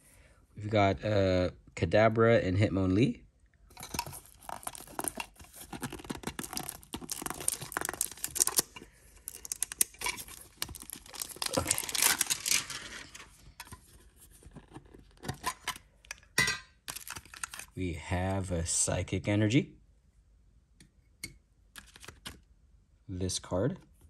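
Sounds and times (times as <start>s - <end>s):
plastic shrink wrap tearing: 4.0s - 13.4s, 16.9s - 17.8s.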